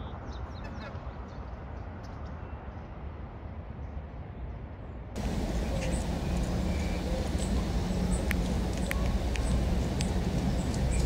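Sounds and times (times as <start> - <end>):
faint high ticks: 5.2 - 11.0
low outdoor rumble: 5.2 - 11.0
steady low hum: 5.2 - 11.0.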